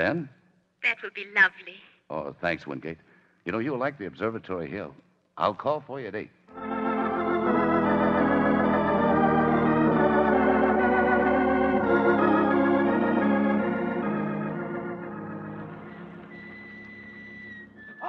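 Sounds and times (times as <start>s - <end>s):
organ chords: 6.5s - 18.0s.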